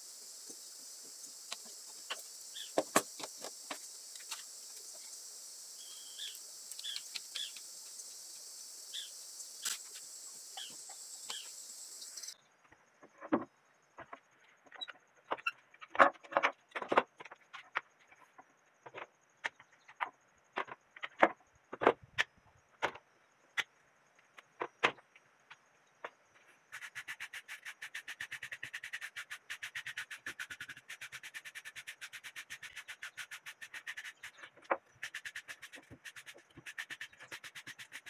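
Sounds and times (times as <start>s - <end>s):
hand file scraping bark: 26.7s - 38.0s.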